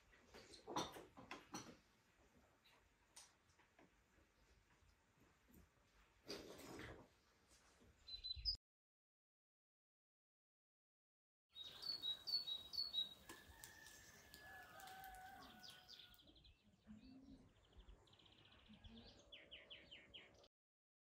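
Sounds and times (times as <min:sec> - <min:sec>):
small birds chirping: 0:08.0 - 0:08.6, 0:11.5 - 0:20.5
bird trills: 0:11.6 - 0:13.4
rooster crowing: 0:13.2 - 0:16.2.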